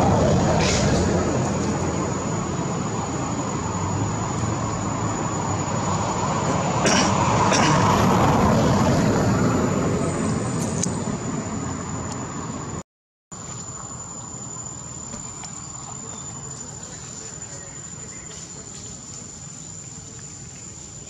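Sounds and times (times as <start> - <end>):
broad even noise: 0.0 - 12.8
insects buzzing: 0.0 - 12.8, 13.4 - 21.0.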